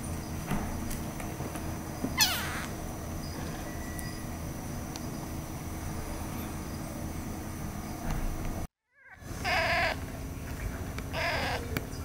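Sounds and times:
kittens mewing: 0:02.2 - 0:02.8, 0:08.9 - 0:10.0, 0:11.1 - 0:11.8.

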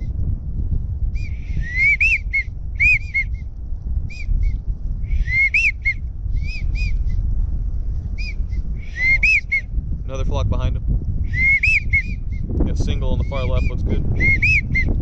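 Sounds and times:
steady low rumble: 0:00.0 - 0:15.0
duck whistle calls: 0:01.2 - 0:03.3, 0:05.1 - 0:06.9, 0:08.2 - 0:09.7, 0:11.3 - 0:12.2, 0:14.2 - 0:14.9.

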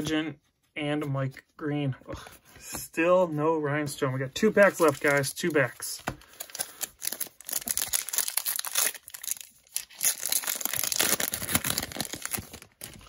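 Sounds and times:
plastic wrapper crinkling: 0:04.6 - 0:13.0.

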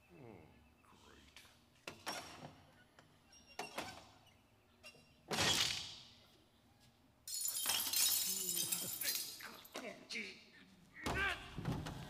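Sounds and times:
glass shattering: 0:07.3 - 0:09.7.

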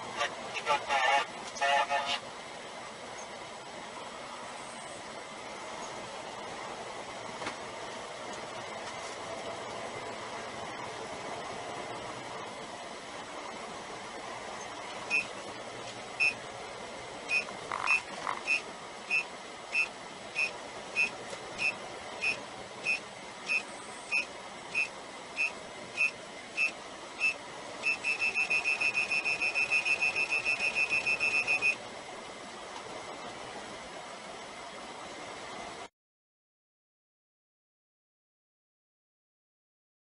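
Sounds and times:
collision warning alarm beeping: 0:15.1 - 0:15.3, 0:16.2 - 0:16.4, 0:17.3 - 0:31.8.

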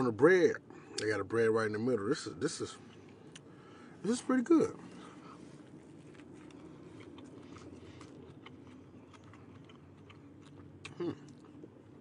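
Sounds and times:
person chewing: 0:04.8 - 0:12.0.

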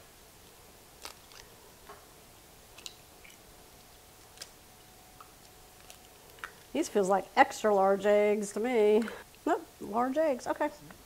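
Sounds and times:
eggshells cracking: 0:01.0 - 0:01.6, 0:05.2 - 0:06.8.

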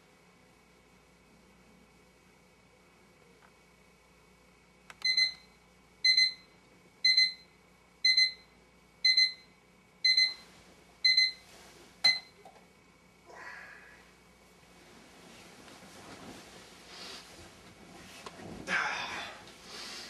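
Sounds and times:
alarm clock beeping: 0:05.0 - 0:05.4, 0:06.0 - 0:06.4, 0:07.0 - 0:10.4, 0:11.0 - 0:11.4, 0:12.0 - 0:12.3
bedding rustling: 0:14.6 - 0:18.7.

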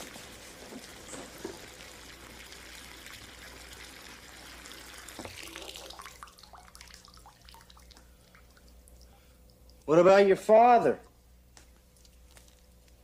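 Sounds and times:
tap water running into bathtub: 0:00.0 - 0:09.1
water drips: 0:00.0 - 0:10.0.

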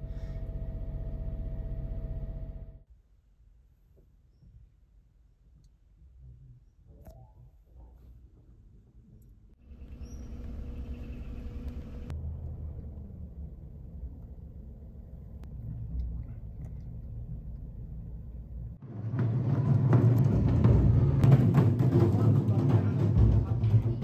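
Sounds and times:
car cabin low rumble: 0:09.6 - 0:18.8.

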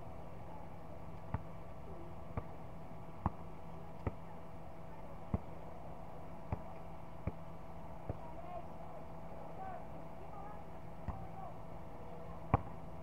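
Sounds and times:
steady low hum: 0:00.0 - 0:13.0
basketball bouncing on hard court: 0:03.2 - 0:03.4, 0:12.5 - 0:12.7.

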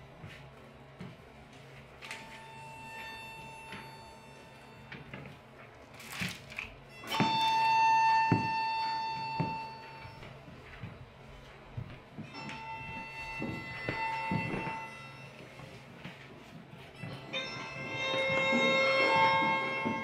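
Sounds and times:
high violin note: 0:02.0 - 0:05.1, 0:06.9 - 0:10.4, 0:12.2 - 0:16.2, 0:16.8 - 0:20.0.

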